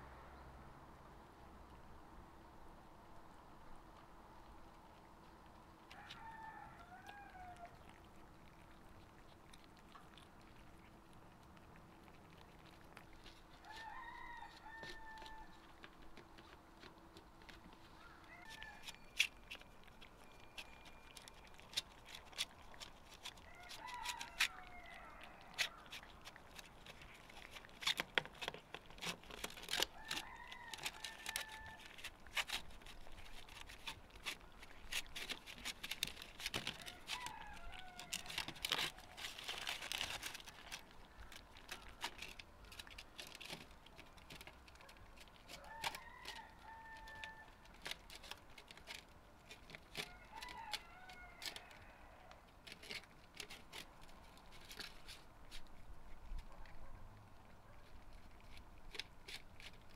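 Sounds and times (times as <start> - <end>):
cats chewing and lapping: 0.9 - 59.9
rooster crowing: 5.9 - 7.8, 13.6 - 15.6, 18.0 - 19.0, 23.4 - 25.8, 29.9 - 31.9, 36.8 - 38.4, 45.6 - 47.6, 50.0 - 52.4.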